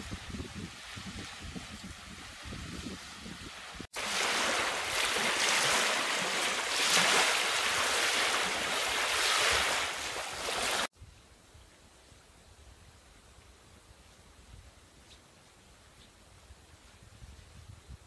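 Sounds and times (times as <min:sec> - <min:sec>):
wind rumble on microphone: 0:00.0 - 0:03.9, 0:16.2 - 0:18.0
waves lapping on gravel shore: 0:00.7 - 0:10.9.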